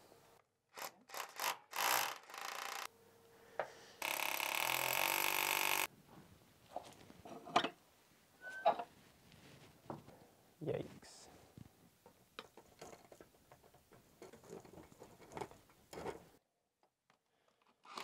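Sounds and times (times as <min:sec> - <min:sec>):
cordless drill whirring: 0:01.2 - 0:02.9, 0:04.0 - 0:05.9
rustling and handling knocks: 0:12.0 - 0:16.4.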